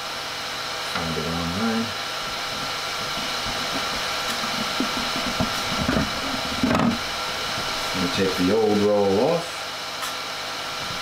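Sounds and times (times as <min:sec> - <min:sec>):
printer whirring hum: 0:00.0 - 0:11.0
plastic spool clattering and rubbing: 0:02.5 - 0:07.0.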